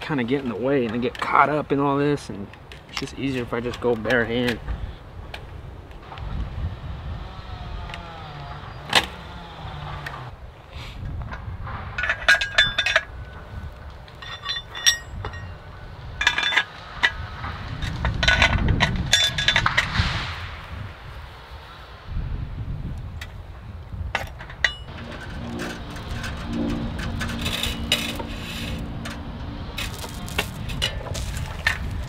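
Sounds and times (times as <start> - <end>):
wire fence clinking and jangling: 12.0 - 13.1, 14.2 - 15.6, 24.4 - 32.0
low rushing rumble: 15.0 - 24.2, 24.8 - 32.0.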